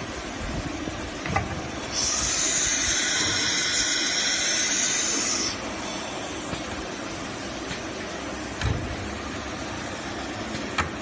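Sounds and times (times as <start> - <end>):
low machine hum: 0.0 - 11.0
compressed air hissing: 1.8 - 6.7.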